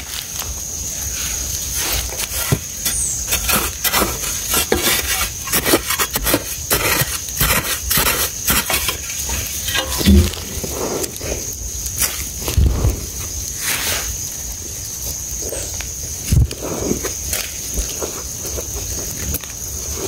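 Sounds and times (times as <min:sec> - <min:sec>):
loose earth pattering down: 0:00.0 - 0:20.0
gloved hand scraping soil: 0:01.1 - 0:12.4.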